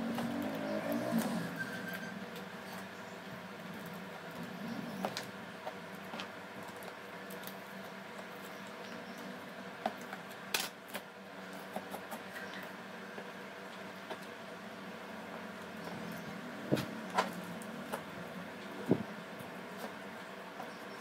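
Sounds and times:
steady background hum: 0.0s - 21.0s.

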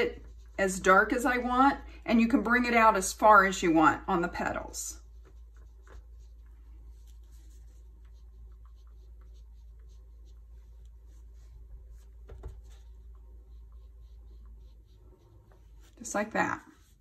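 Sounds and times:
sponge dabbing soft scuffs: 4.4s - 17.0s.

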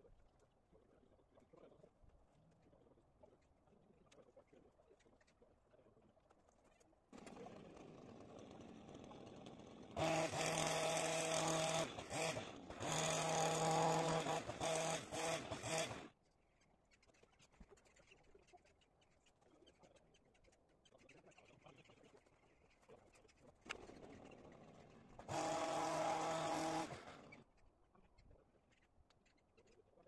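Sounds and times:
hedge trimmer cutting: 7.2s - 16.1s, 24.6s - 27.4s.

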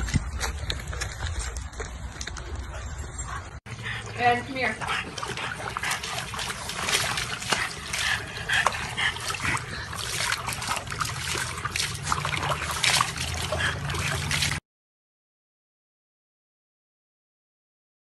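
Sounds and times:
water splashing in plastic tub: 4.1s - 14.6s.

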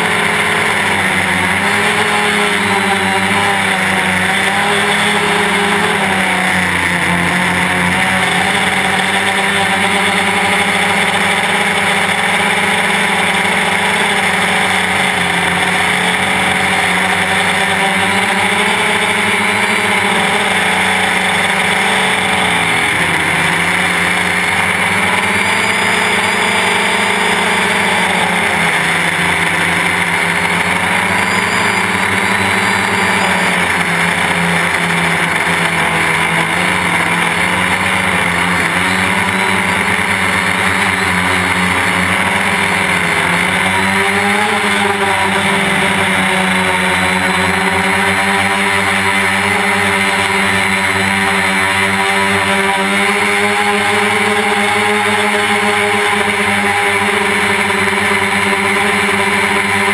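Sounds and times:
quadcopter motors whining: 0.0s - 59.9s.

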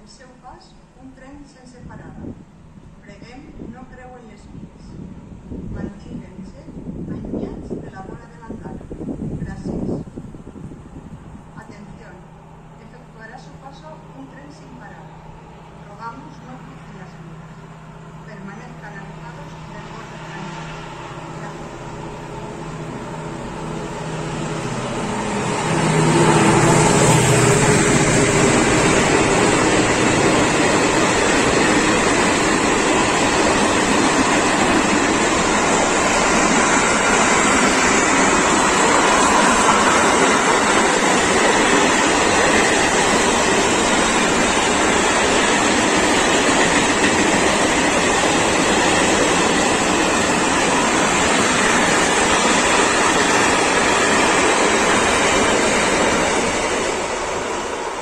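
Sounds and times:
diesel locomotive engine: 0.0s - 58.0s
train wagons rolling on rails: 19.3s - 58.0s.

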